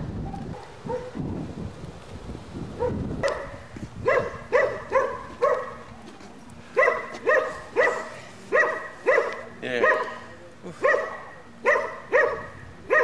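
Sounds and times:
dog barking: 0:00.5 - 0:01.2, 0:02.8 - 0:05.9, 0:06.8 - 0:13.0.

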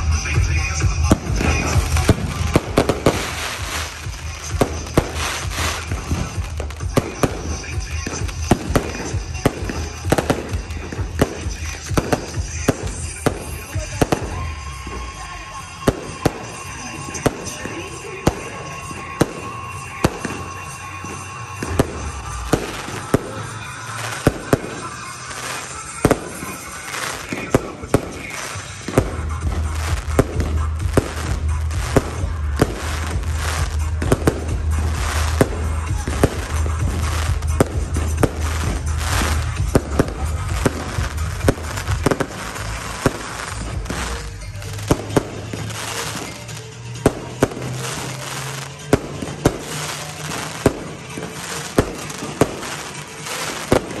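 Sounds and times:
fireworks bangs and crackles: 0:00.0 - 0:54.0.

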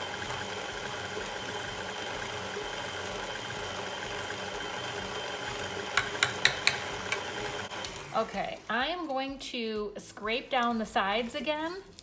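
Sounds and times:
stand mixer motor humming: 0:00.0 - 0:08.2.

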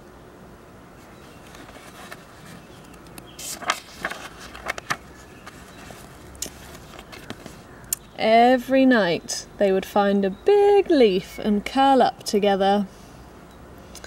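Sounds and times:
faint steady background noise: 0:00.0 - 0:14.0
book pages rustling: 0:01.3 - 0:07.7.

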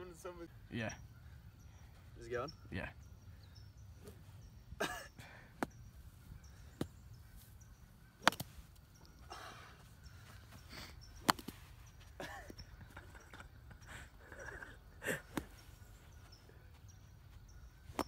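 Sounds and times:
golf club striking sand: 0:08.2 - 0:08.7, 0:11.2 - 0:11.6.

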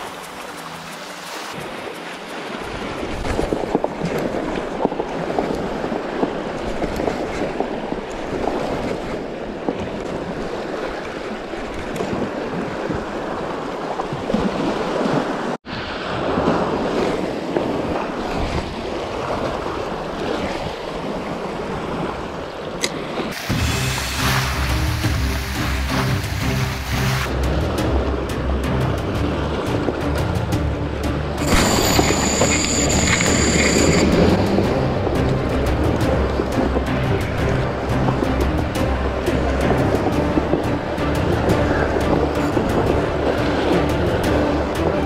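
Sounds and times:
surf on rocky shore: 0:00.0 - 0:27.9, 0:31.4 - 0:45.0
wind buffeting microphone: 0:01.5 - 0:23.4.

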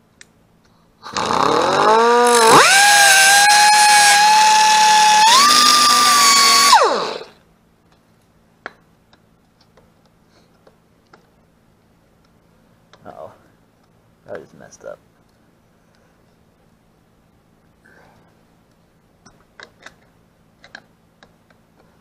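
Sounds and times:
angle grinder cutting metal: 0:01.1 - 0:07.4.

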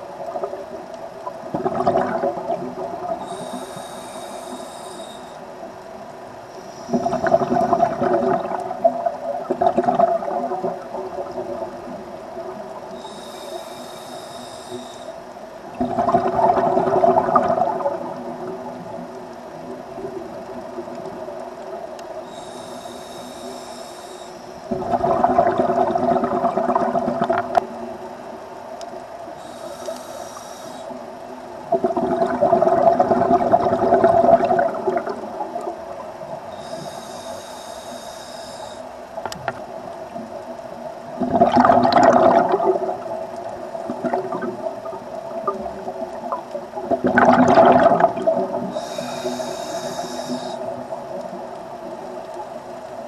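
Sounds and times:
exhaled air bubbling: 0:00.0 - 0:05.4, 0:06.8 - 0:28.3, 0:29.3 - 0:52.4
steady hum: 0:00.0 - 0:53.0
regulator inhale hiss: 0:03.1 - 0:07.8, 0:12.8 - 0:15.4, 0:22.0 - 0:24.7, 0:29.3 - 0:31.2, 0:36.4 - 0:39.1, 0:48.6 - 0:51.3.

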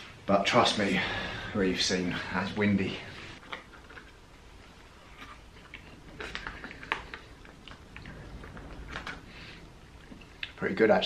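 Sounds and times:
quiet chewing: 0:03.4 - 0:10.6.

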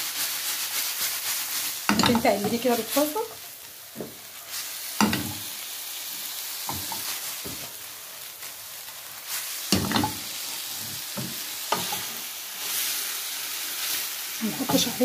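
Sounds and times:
liver sizzling in a frying pan: 0:00.0 - 0:15.0
utensil scraping and knocking pan: 0:09.7 - 0:10.2.

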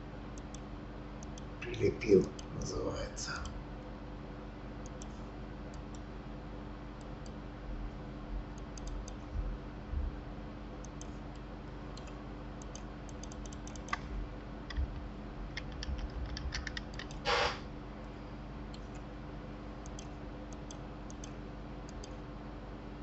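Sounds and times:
keyboard keys clicking: 0:08.7 - 0:09.2, 0:12.0 - 0:14.0, 0:14.7 - 0:17.2
low hum: 0:12.0 - 0:19.0.

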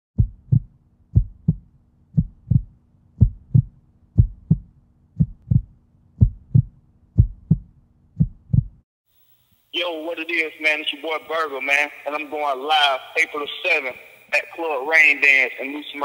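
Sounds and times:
heartbeat thumps: 0:00.2 - 0:08.8.

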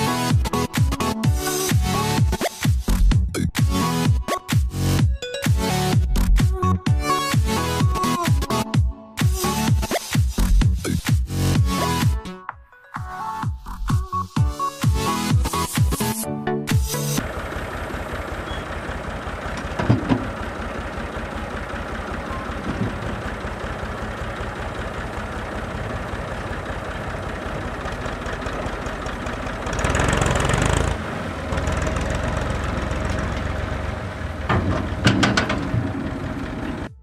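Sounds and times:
tractor diesel engine running: 0:14.9 - 0:37.0.

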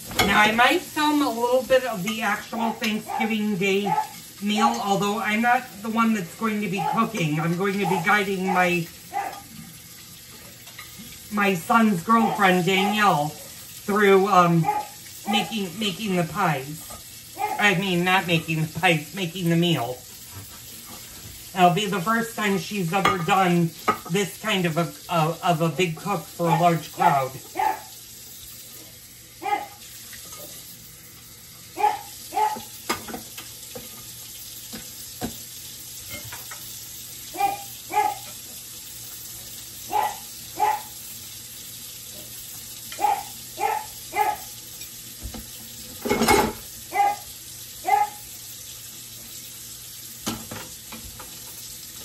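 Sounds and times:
dog barking: 0:02.9 - 0:04.2, 0:06.8 - 0:09.5, 0:14.6 - 0:15.5, 0:17.4 - 0:17.7, 0:27.5 - 0:28.0, 0:29.4 - 0:29.8, 0:31.8 - 0:32.7, 0:37.3 - 0:38.3, 0:39.9 - 0:41.0, 0:43.0 - 0:44.6, 0:46.9 - 0:48.3.

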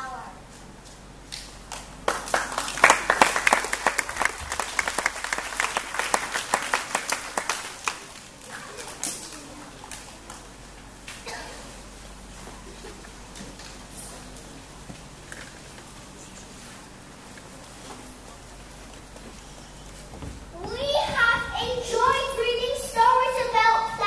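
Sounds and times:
audience applauding: 0:02.0 - 0:09.5.

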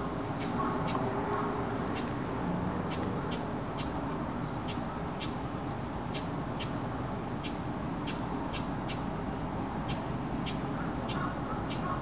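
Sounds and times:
bird chirping: 0:07.4 - 0:12.0.

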